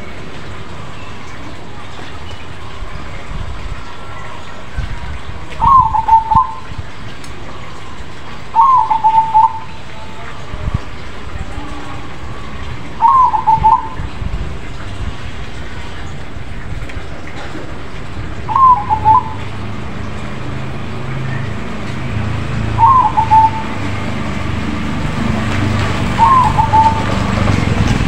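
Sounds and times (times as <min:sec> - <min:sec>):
dove cooing: 0:05.6 - 0:06.7, 0:08.6 - 0:09.7, 0:13.0 - 0:14.0, 0:18.5 - 0:19.4, 0:22.7 - 0:24.0, 0:26.2 - 0:27.3.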